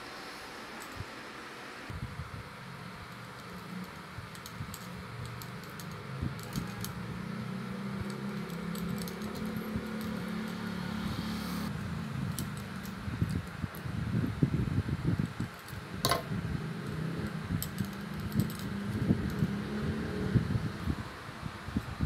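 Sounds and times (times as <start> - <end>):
steady low hum: 0.0 - 22.0
metal wire clicking and scraping: 3.0 - 11.0, 11.6 - 14.0, 15.2 - 19.7.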